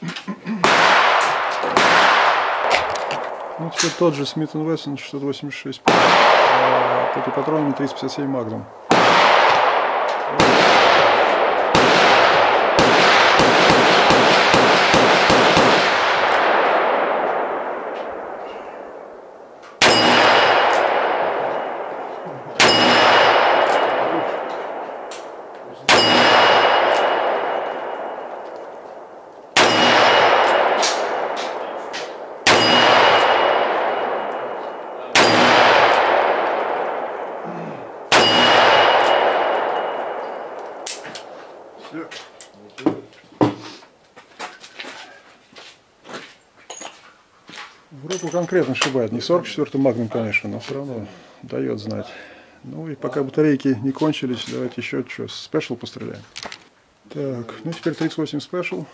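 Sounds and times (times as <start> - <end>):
revolver gunshots: 0.6 - 4.3, 5.8 - 41.8
steel plate target ringing: 19.8 - 28.5, 29.6 - 36.8, 38.1 - 40.8.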